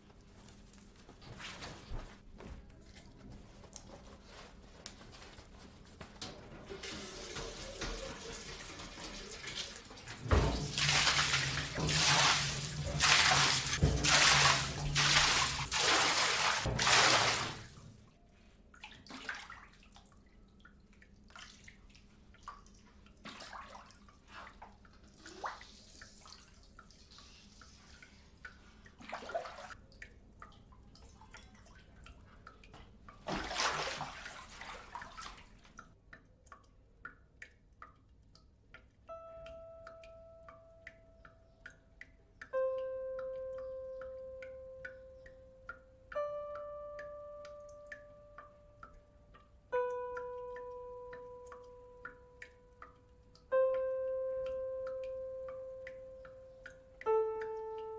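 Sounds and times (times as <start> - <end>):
tap running into a sink: 6.2 - 15.7.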